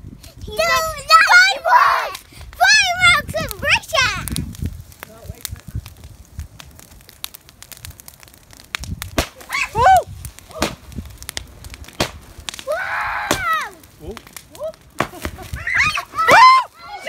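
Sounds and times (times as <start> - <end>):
fireworks crackling and popping: 0.0 - 17.0
voices calling out: 12.6 - 17.0.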